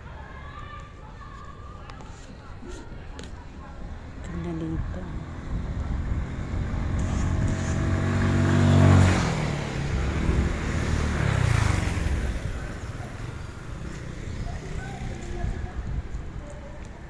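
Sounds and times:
vehicle engine passing by: 4.4s - 16.5s.

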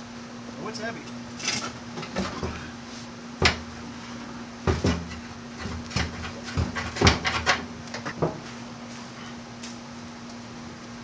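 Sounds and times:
knocks and clunks on fuel tank: 4.7s - 7.6s.

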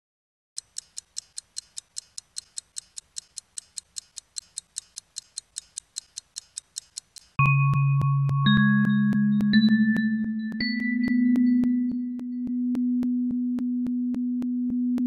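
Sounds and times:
film projector ticking: 0.6s - 7.4s.

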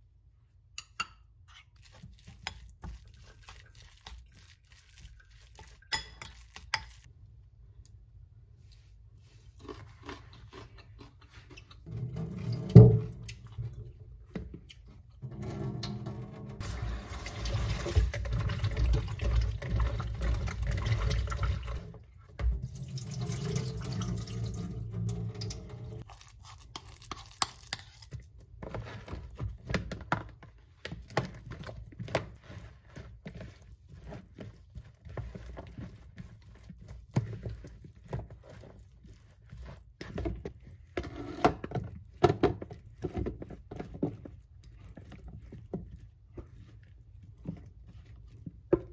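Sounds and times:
spatula scraping plastic bowl: 9.5s - 22.1s, 27.7s - 48.9s
water running at a sink: 11.9s - 13.4s, 15.4s - 26.0s.

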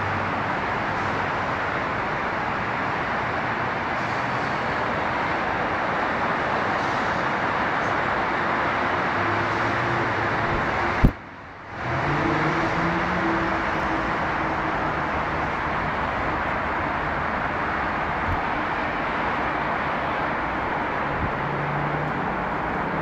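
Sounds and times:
freeway traffic: 0.0s - 23.0s.

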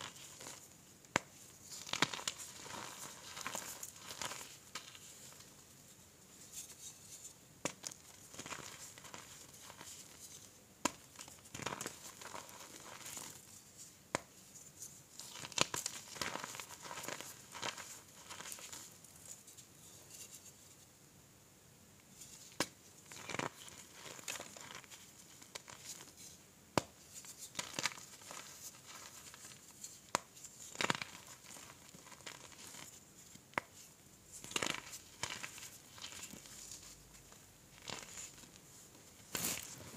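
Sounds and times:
chalk pieces cracking: 0.0s - 5.2s
hands crushing chalk: 0.0s - 5.5s, 6.4s - 13.4s, 14.1s - 19.4s, 22.2s - 38.6s, 39.2s - 39.9s.

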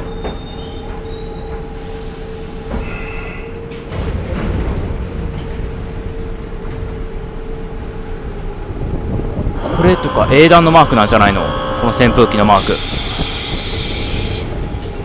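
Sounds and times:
train wheels squealing: 0.0s - 3.9s, 9.6s - 15.0s
wheels rumbling on rails: 0.0s - 15.0s
steady hum: 5.1s - 15.0s.

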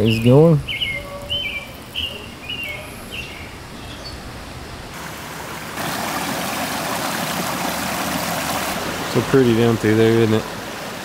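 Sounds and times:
water rushing over stones: 4.9s - 11.0s.

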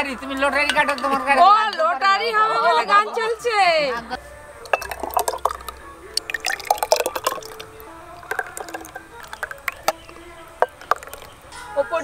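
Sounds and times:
glass tumblers clinking: 0.0s - 2.0s, 4.6s - 11.8s
faint music: 0.0s - 12.0s.

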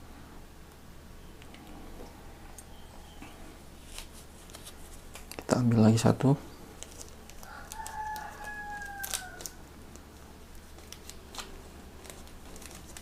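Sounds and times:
clicks and rustles of handling: 3.8s - 5.6s
rooster crowing: 7.4s - 9.7s.

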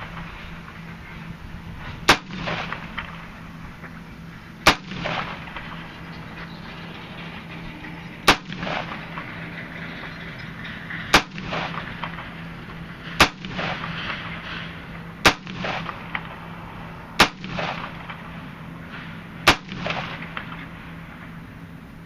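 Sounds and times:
rifle shots with echo: 2.0s - 3.3s, 4.6s - 5.9s, 8.2s - 9.4s, 11.1s - 12.4s, 13.0s - 16.4s, 17.2s - 18.4s, 19.4s - 20.8s.

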